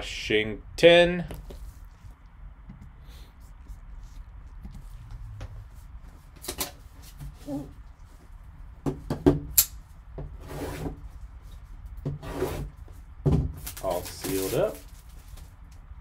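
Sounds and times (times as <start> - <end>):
cellophane wrap crinkling: 13.6 - 15.7.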